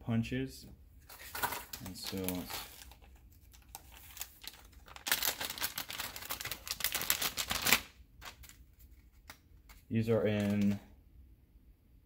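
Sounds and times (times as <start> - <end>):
plastic pack crackling and clicking: 1.1 - 10.8.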